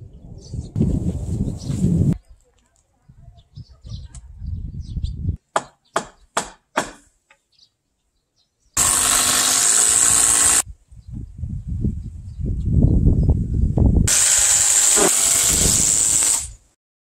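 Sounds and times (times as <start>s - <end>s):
power drill driving into timber: 8.8s - 10.6s, 14.1s - 16.6s.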